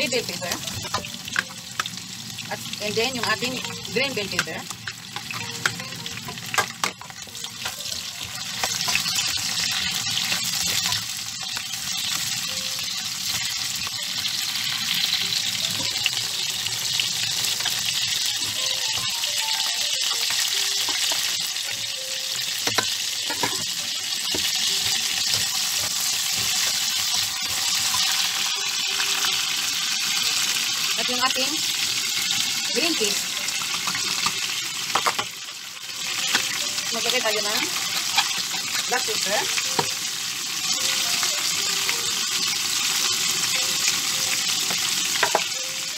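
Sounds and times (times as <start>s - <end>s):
vegetables sizzling in oil: 0.0s - 45.9s
spatula knocking on pan: 22.6s - 27.7s.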